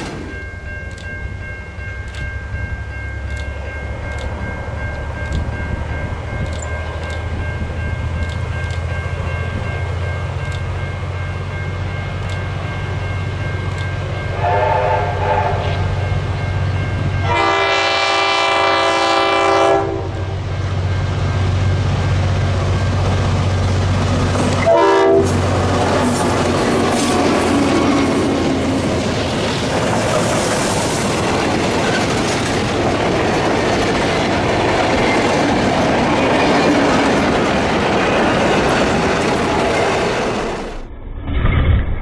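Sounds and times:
diesel locomotive engines droning: 0.0s - 41.0s
train horn blasts: 14.3s - 15.9s, 17.2s - 20.4s, 24.6s - 25.5s
train wheels clattering: 22.9s - 40.6s.

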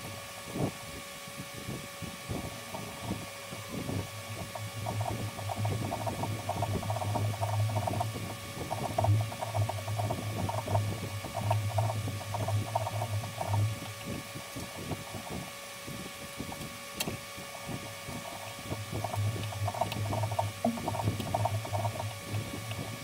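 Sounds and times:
faint steady hum: 0.0s - 23.0s
tap grating as it cuts metal: 4.5s - 15.2s, 18.1s - 23.0s.

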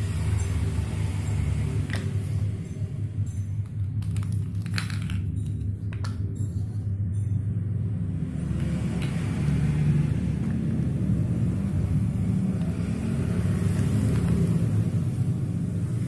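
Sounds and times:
plastic toy blocks clicking: 3.9s - 6.2s.

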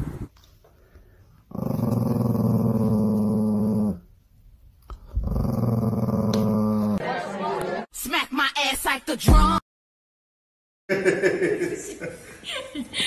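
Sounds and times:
small dog growling: 1.5s - 4.0s, 5.0s - 7.0s.

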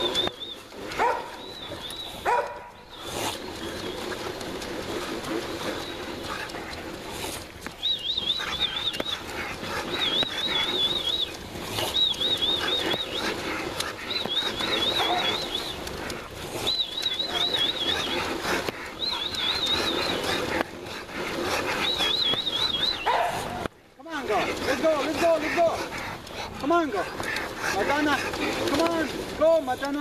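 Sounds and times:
dog whining: 14.2s - 15.7s.

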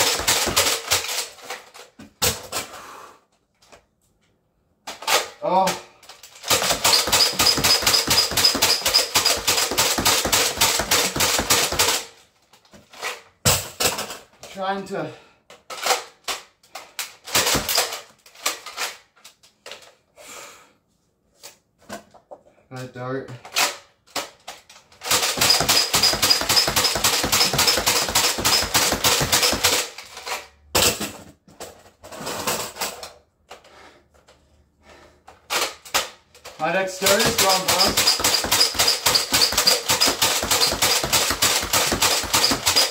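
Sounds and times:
foam dart blaster pumping and firing: 0.0s - 1.2s, 6.4s - 12.0s, 25.0s - 30.0s, 36.9s - 42.9s
high squeak: 6.9s - 9.4s.

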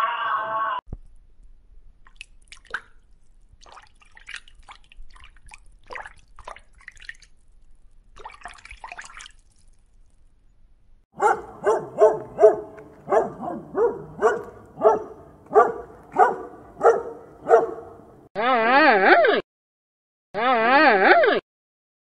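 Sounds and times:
watery clicks and drips: 2.0s - 10.3s
dog barking: 11.2s - 18.2s.

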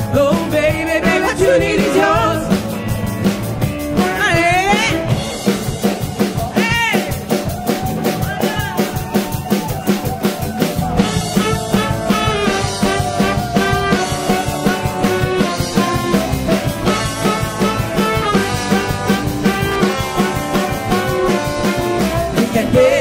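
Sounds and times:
drum beat: 0.0s - 23.0s
electric guitar: 0.0s - 23.0s
women singing: 0.1s - 2.5s, 22.0s - 23.0s
saxophone: 11.0s - 23.0s
trombone: 11.0s - 23.0s.

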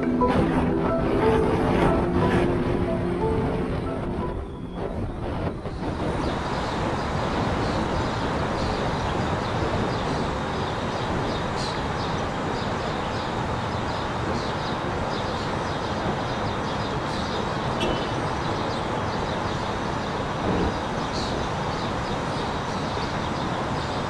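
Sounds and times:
car road and wind noise: 0.0s - 24.0s.

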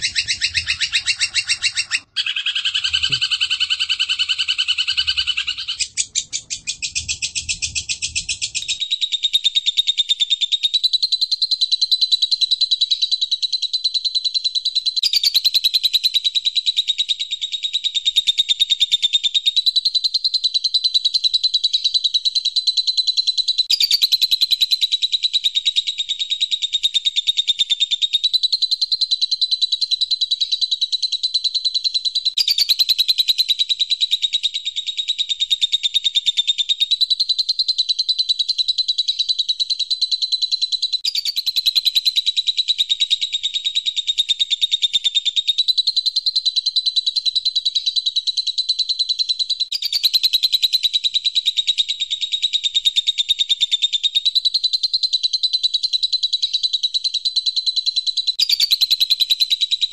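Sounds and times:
sparrows chirping: 0.0s - 13.4s, 23.4s - 40.1s, 40.7s - 45.8s, 49.7s - 54.6s, 58.2s - 59.9s.

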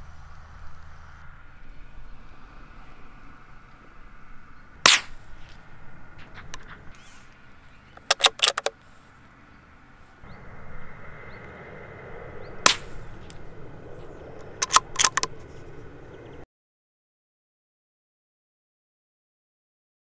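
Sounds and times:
rifle firing sharp cracks: 4.8s - 5.3s, 8.0s - 8.8s, 12.6s - 13.5s, 14.4s - 15.6s.

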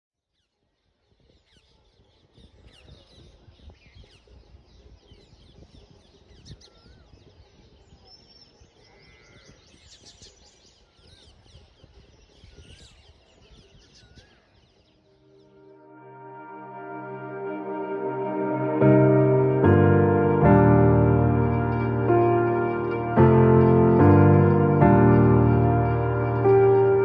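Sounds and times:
many birds chirping: 0.8s - 16.0s.

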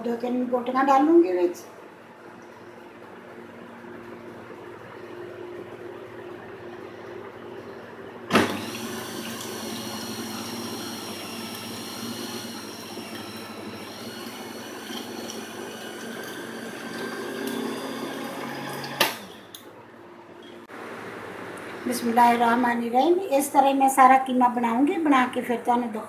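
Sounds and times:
electric meat grinder whining: 8.4s - 19.6s.

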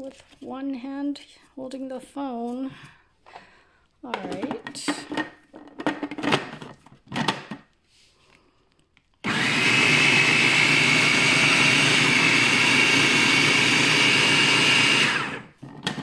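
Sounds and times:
food processor motor whining: 9.2s - 16.0s.

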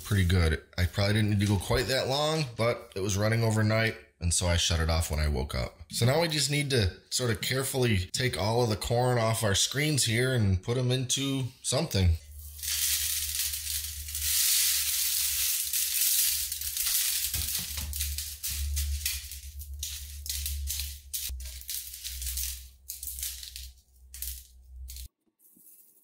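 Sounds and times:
corn kernels rattling into metal pan: 12.4s - 26.0s.

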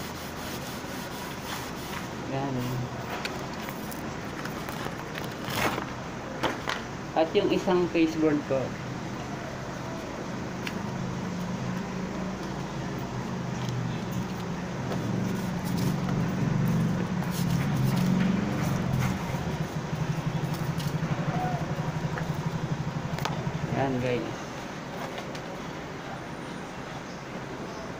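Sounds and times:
vehicle engine running: 10.4s - 24.7s.

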